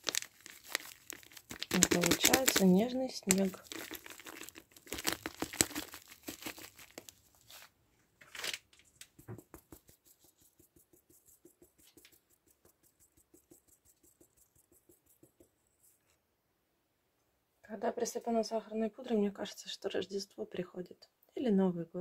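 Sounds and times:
sieve shaking sugar: 0.0s - 7.6s, 9.0s - 15.9s.

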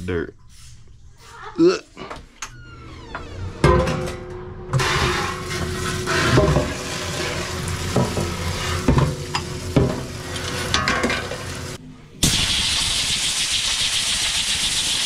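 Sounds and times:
tap water running into sink: 5.5s - 11.8s.

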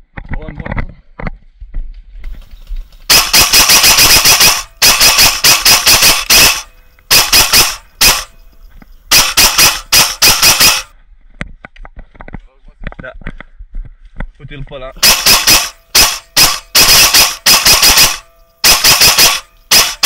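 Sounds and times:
airsoft rifle firing bursts: 3.1s - 8.3s, 9.1s - 10.9s, 15.0s - 20.0s.

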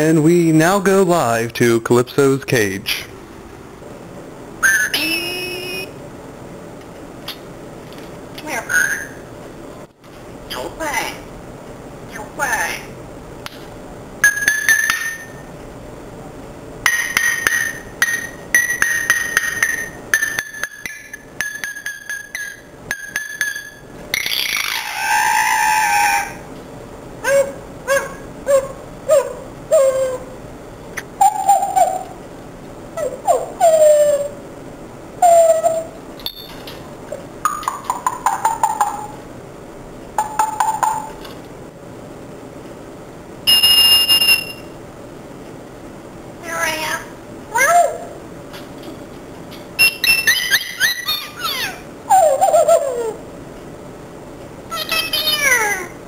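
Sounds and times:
parrot whistle: 4.6s - 5.9s, 43.5s - 44.7s, 49.8s - 51.8s
parrot calling: 24.2s - 26.5s, 27.2s - 30.4s, 31.2s - 32.2s, 35.2s - 36.0s, 49.8s - 53.2s, 54.7s - 56.0s.

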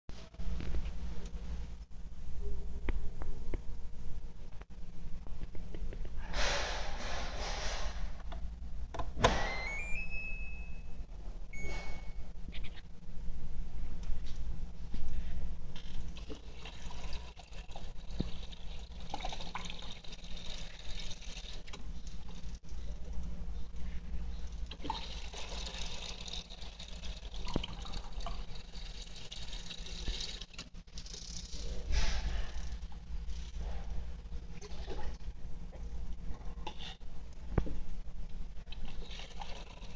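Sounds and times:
low steady hum: 0.1s - 39.9s
electronic beeps: 9.5s - 12.8s
water running into plastic cup: 16.1s - 22.2s, 24.7s - 30.7s.

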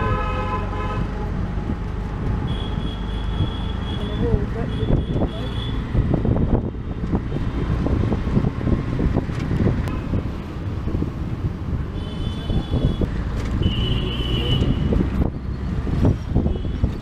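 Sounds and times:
auto-rickshaw engine running: 0.0s - 17.0s
street traffic: 0.0s - 17.0s
wind buffeting microphone: 4.4s - 13.5s, 14.6s - 17.0s.

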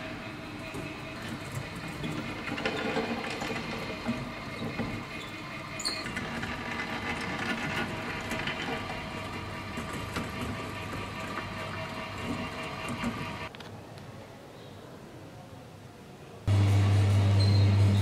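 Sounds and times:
scratchy rubbing and rolling whir: 0.0s - 13.5s
mechanical hum: 0.0s - 18.0s.

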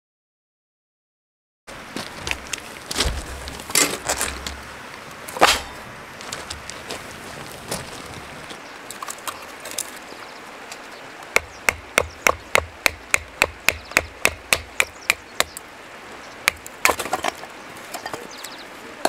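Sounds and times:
wood cracking and clattering: 2.2s - 4.6s.

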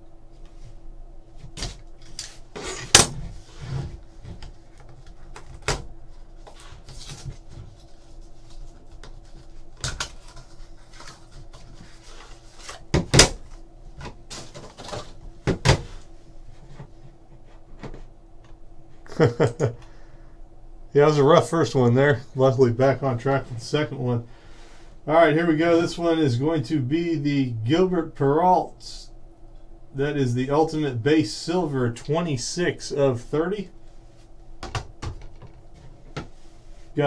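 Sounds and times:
cardboard rustling: 1.4s - 18.0s.

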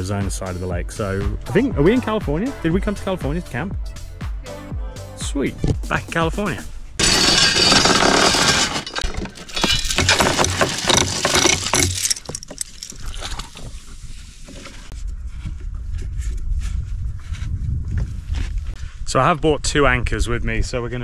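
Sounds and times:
anchor chain rattling: 7.0s - 13.7s.

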